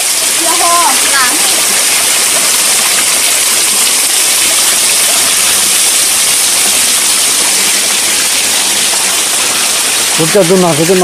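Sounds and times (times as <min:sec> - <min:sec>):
waterfall rushing into pool: 0:00.0 - 0:11.0.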